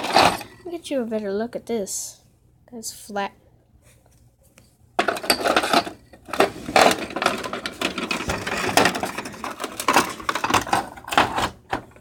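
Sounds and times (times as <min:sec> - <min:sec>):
rustling and clattering handling noise: 0:00.0 - 0:00.6, 0:03.8 - 0:12.0.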